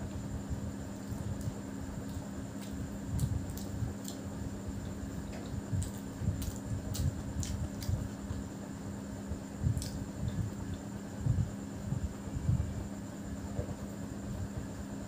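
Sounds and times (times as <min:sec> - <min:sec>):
steady low hum: 0:00.0 - 0:15.0
person chewing food: 0:01.0 - 0:08.2.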